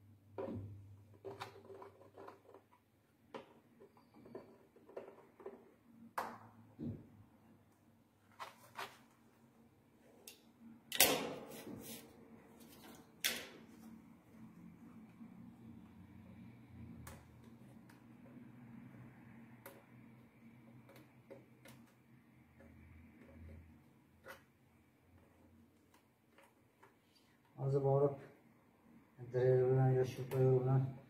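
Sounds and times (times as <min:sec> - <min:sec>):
marker scratching and tapping: 0:03.4 - 0:05.8, 0:20.6 - 0:27.0.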